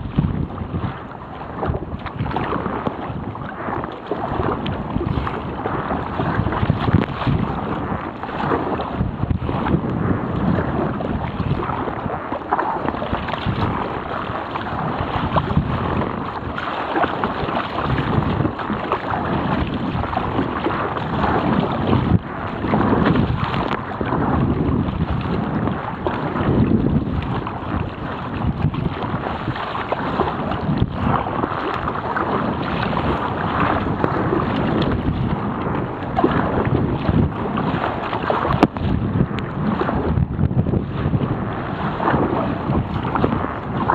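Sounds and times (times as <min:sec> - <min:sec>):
rough sea water splashing: 0:00.0 - 0:43.9
wind buffeting microphone: 0:00.0 - 0:43.9.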